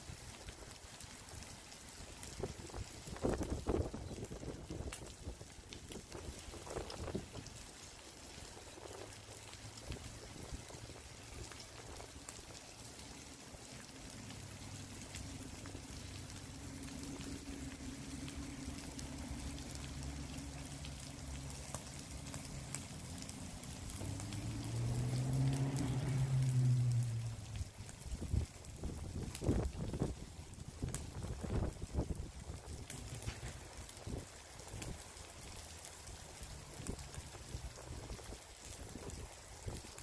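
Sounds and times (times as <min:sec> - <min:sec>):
low engine hum: 0:09.1 - 0:31.8.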